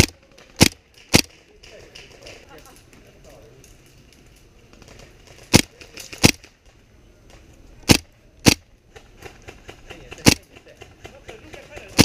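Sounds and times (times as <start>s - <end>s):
airsoft gun shots: 0.0s - 1.4s, 5.5s - 6.5s, 7.8s - 9.6s, 10.2s - 10.5s.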